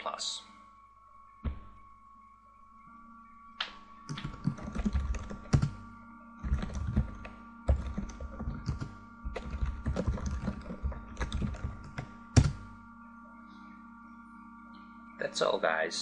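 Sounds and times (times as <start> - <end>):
keyboard typing clicks: 3.6 - 5.8, 6.4 - 12.7.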